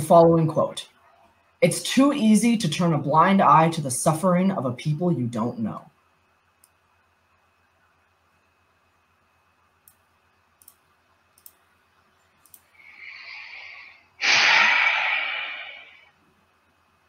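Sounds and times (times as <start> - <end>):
faint clicks: 6.6 - 6.8, 9.8 - 11.6, 12.2 - 12.8
long loud exhale: 12.8 - 16.1
person breathing in: 12.8 - 16.2.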